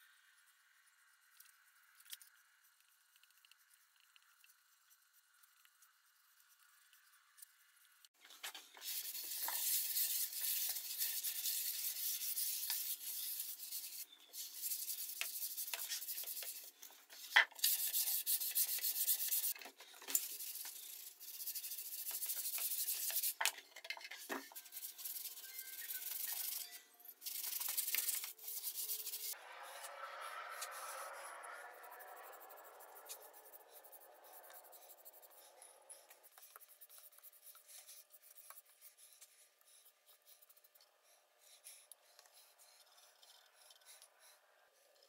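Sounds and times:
hand sanding wood: 0:08.8 - 0:19.6, 0:20.2 - 0:23.4, 0:24.6 - 0:26.6, 0:27.2 - 0:29.4.

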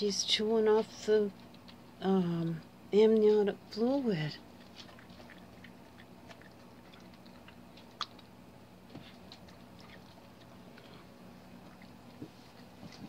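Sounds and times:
dog chewing clicks: 0:01.3 - 0:01.9, 0:04.6 - 0:13.0.

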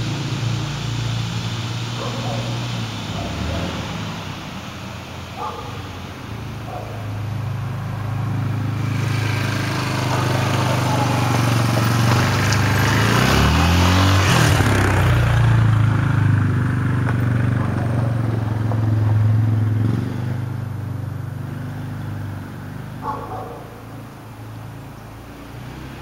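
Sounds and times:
quad bike engine running: 0:01.7 - 0:03.8, 0:06.6 - 0:24.9.

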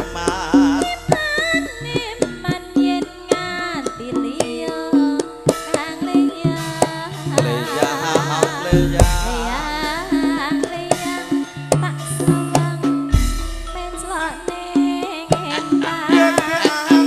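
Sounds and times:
person singing ornamented lines: 0:00.0 - 0:01.6, 0:05.8 - 0:12.5, 0:14.0 - 0:17.0
metal gamelan held notes: 0:00.0 - 0:02.9, 0:04.8 - 0:17.0
hand drum strokes: 0:00.0 - 0:17.0.

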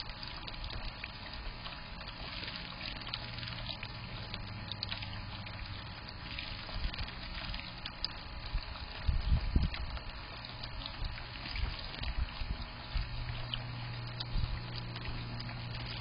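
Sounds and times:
fountain trickling into basin: 0:00.0 - 0:16.0
small water splashes: 0:00.0 - 0:16.0
soft low thumps: 0:04.3 - 0:16.0.

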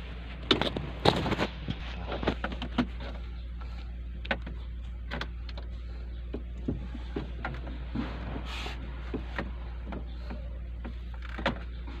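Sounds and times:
steady low hum: 0:00.0 - 0:12.0
clicks of plastic dashboard panels: 0:06.3 - 0:08.2, 0:09.0 - 0:12.0.

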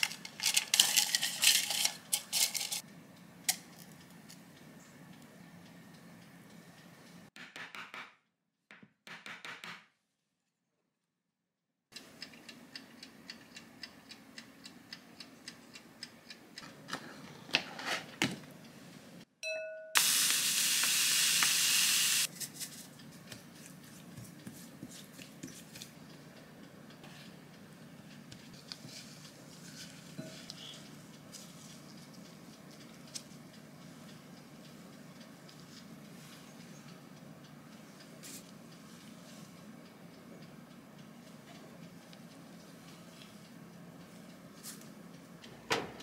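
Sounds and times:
loud steady hiss: 0:20.0 - 0:22.3.

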